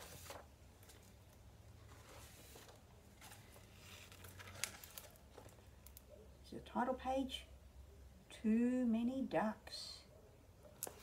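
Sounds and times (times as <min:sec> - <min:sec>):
paper rustling: 0:00.0 - 0:06.0.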